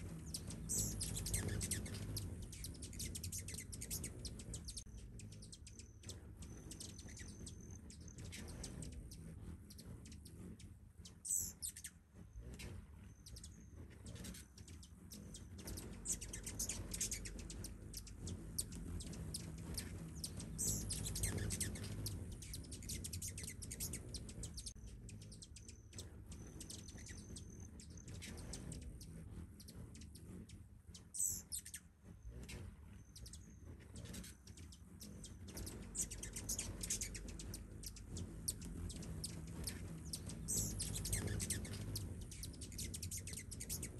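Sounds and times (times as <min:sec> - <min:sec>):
hummingbirds chirping: 0:00.0 - 0:43.9
low steady rumble: 0:00.0 - 0:43.9.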